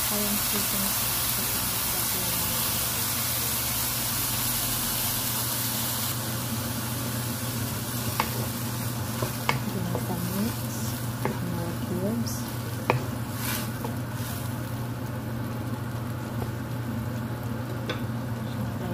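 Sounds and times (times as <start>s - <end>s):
food sizzling in a wok: 0.0s - 18.9s
steady low hum: 0.0s - 18.9s
spatula scraping a pan: 12.4s - 14.5s.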